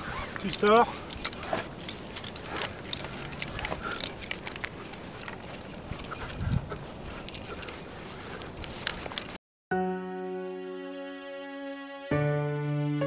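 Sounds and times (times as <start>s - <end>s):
climbing hardware clinking: 0.0s - 9.4s.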